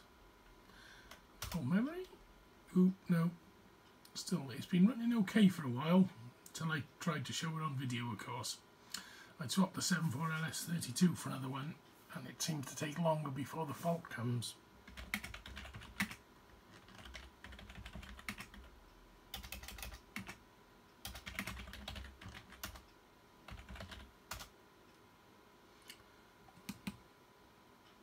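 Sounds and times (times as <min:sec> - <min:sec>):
typing on computer keyboard: 0:14.9 - 0:18.7, 0:19.3 - 0:20.4, 0:21.0 - 0:22.9, 0:23.5 - 0:24.5, 0:26.5 - 0:27.0.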